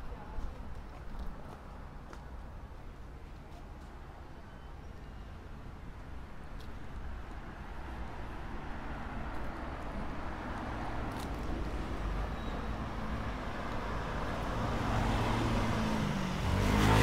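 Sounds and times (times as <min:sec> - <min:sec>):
vehicle engine and tyres: 0:05.6 - 0:17.0.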